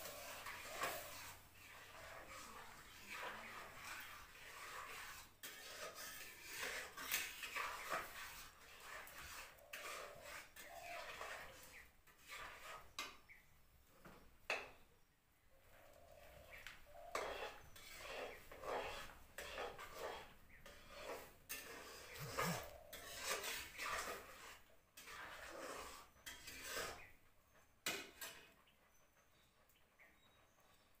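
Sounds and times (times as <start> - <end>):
metal ladle scraping a metal pan: 0.0 - 13.2, 16.9 - 27.2, 27.8 - 28.6.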